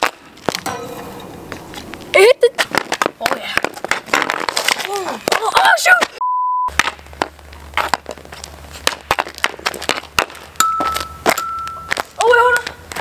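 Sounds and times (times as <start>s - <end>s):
hockey stick striking plastic ball: 2.6s - 5.6s, 8.8s - 12.1s
test-tone beep: 6.2s - 6.7s.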